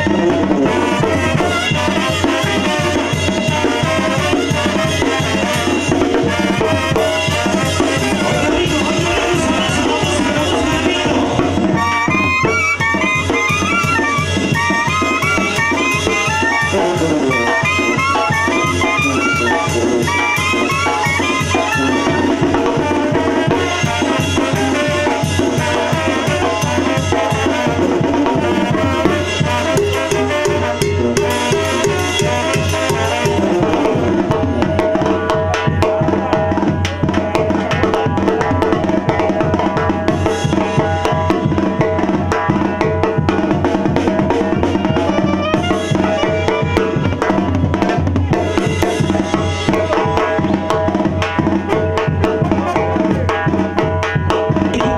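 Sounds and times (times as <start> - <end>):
bass drum: 0.0 - 54.9
brass band playing: 0.0 - 54.9
snare drum beat: 2.8 - 25.0, 41.3 - 54.9.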